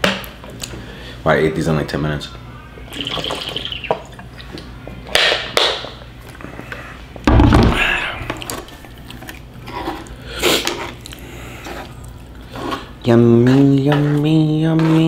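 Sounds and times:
man breathing out hard: 7.7s - 8.4s.

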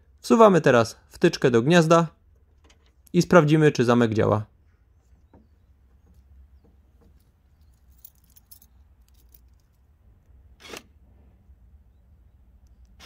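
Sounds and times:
light clicks and rattles: 5.2s - 10.3s
car keys jingling: 7.1s - 9.9s.

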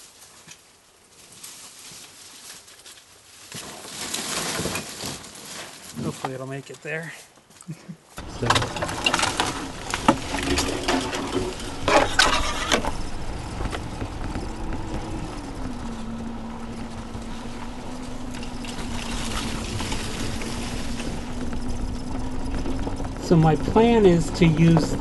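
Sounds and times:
body knocks and rattles: 8.2s - 25.0s
electric motor whine: 8.2s - 25.0s
tyre and chassis noise: 8.2s - 25.0s.

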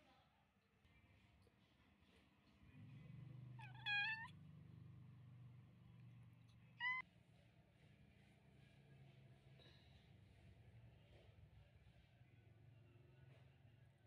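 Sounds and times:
kittens mewing: 3.6s - 4.3s, 6.7s - 7.0s.

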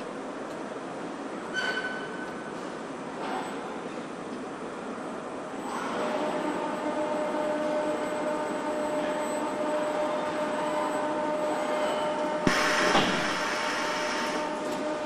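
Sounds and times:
factory machinery hum: 0.0s - 15.0s
brief hiss: 12.5s - 14.5s.

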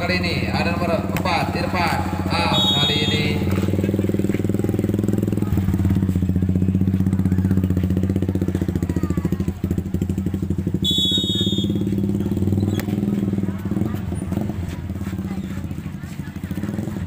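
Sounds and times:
small engine droning: 0.0s - 17.0s
referee's whistle: 2.5s - 3.3s, 10.8s - 12.0s.

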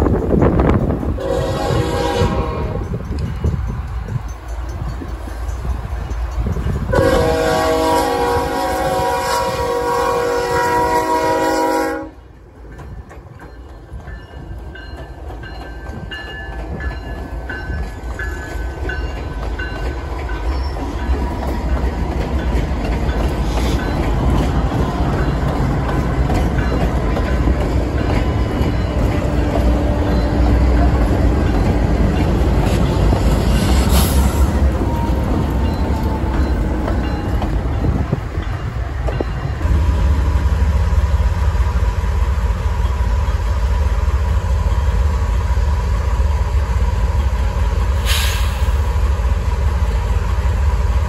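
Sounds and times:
diesel locomotive rumble: 0.0s - 51.0s
locomotive air horn blast: 1.2s - 2.9s, 6.9s - 12.2s, 48.0s - 48.8s.

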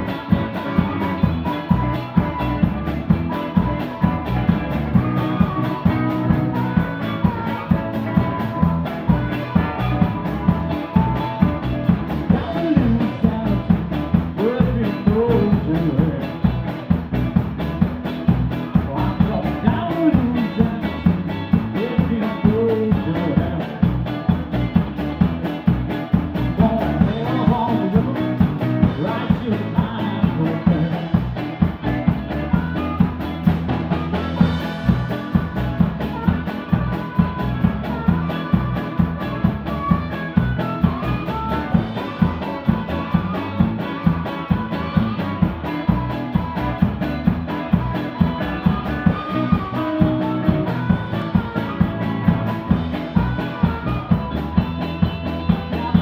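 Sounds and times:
drum kit beat: 0.0s - 56.0s
electric guitars: 0.0s - 56.0s.

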